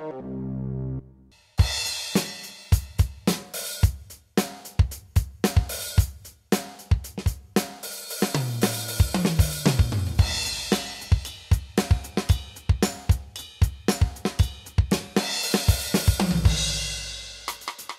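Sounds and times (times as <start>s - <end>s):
tom fill falling in pitch: 0.0s - 1.3s
electronic drum beat: 1.6s - 17.9s.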